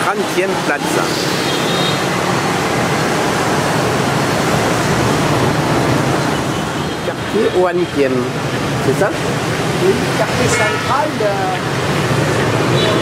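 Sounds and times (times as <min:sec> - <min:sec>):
dense traffic rushing: 0:00.0 - 0:13.0.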